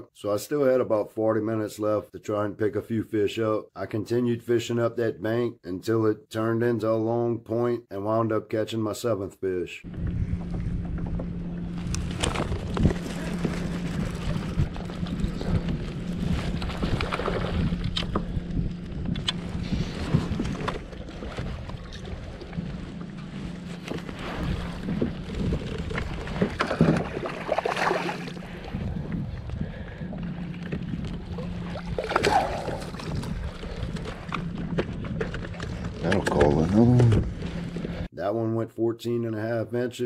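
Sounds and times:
water around hull: 0:09.8 - 0:38.1
steady low hum: 0:09.8 - 0:38.2
wind buffeting microphone: 0:09.9 - 0:36.2
sharp knocks and splashes: 0:23.8 - 0:28.6, 0:31.4 - 0:36.2.

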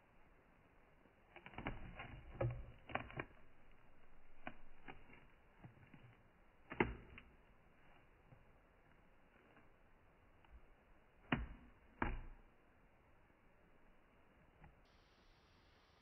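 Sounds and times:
clicks and knocks on plastic enclosure: 0:11.2 - 0:12.4.

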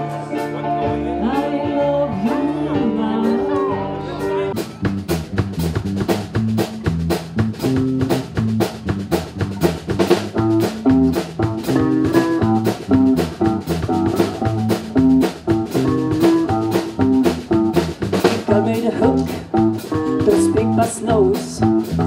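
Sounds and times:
keyboard: 0:00.0 - 0:04.8
drum kit beat: 0:00.0 - 0:22.0
electric guitar: 0:00.0 - 0:22.0
low bass notes: 0:00.0 - 0:22.0.

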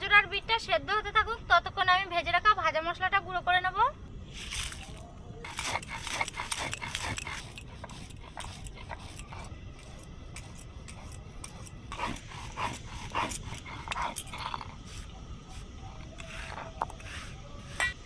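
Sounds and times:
stone roller grinding spices: 0:04.4 - 0:18.0.

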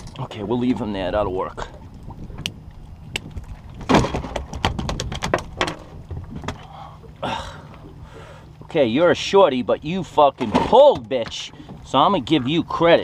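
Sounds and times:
knocks on boat deck: 0:03.2 - 0:06.6.

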